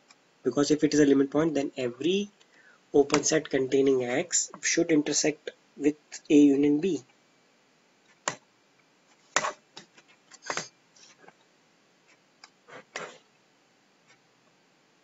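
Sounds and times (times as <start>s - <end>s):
stylus tapping on tablet: 8.1s - 8.4s.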